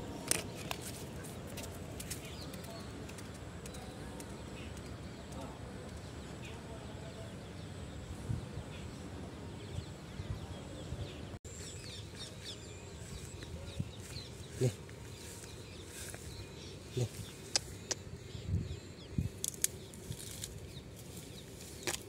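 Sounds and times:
birds chirping faintly: 0.0 - 22.0.

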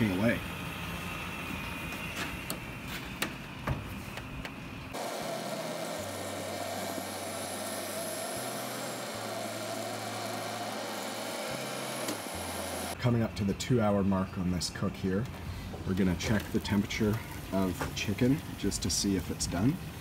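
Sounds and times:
rotisserie motor humming: 4.9 - 13.0.

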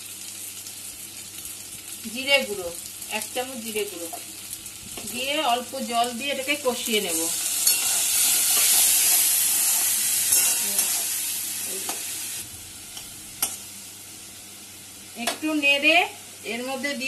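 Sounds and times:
oil sizzling in a wok: 0.0 - 17.0
metal spatula scraping a pan: 7.4 - 11.1.

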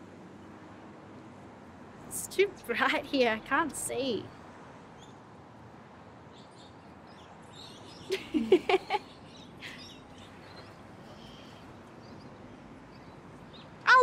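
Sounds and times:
small birds chirping: 6.2 - 14.0.

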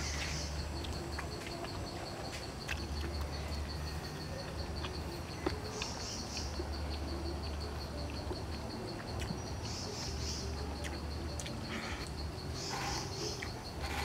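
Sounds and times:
insect chirping: 0.0 - 14.0.

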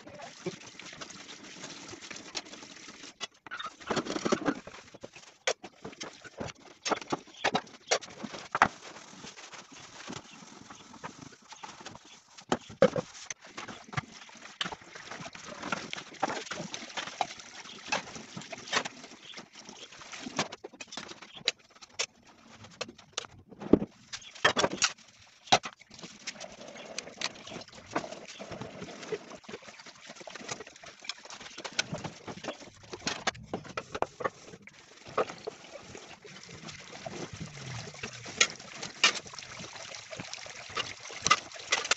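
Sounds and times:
tap water running: 0.0 - 21.2, 24.0 - 41.9
sponge scrubbing metal pans: 23.9 - 41.9.

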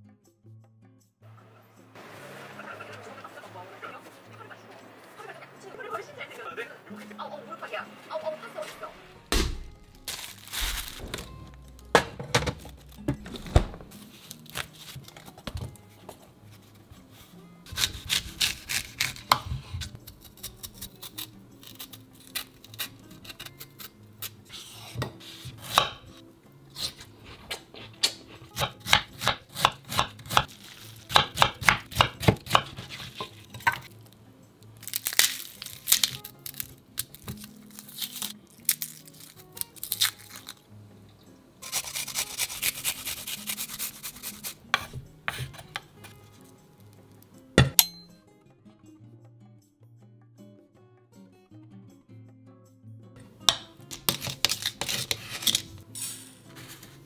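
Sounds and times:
knife chopping on wooden board: 24.8 - 26.2, 26.8 - 30.5, 31.1 - 33.9, 43.8 - 46.2.

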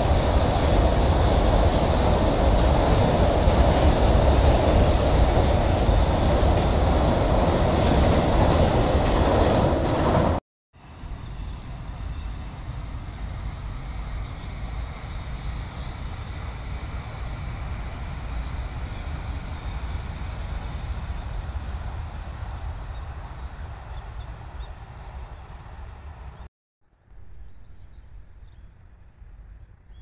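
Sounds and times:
distant train rumbling: 0.0 - 26.5.

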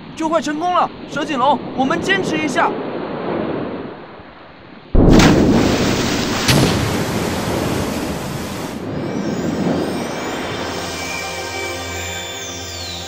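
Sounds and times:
sharp hit: 5.0 - 8.4
loud blast: 5.0 - 8.9
cartoon water rush: 5.0 - 11.1.

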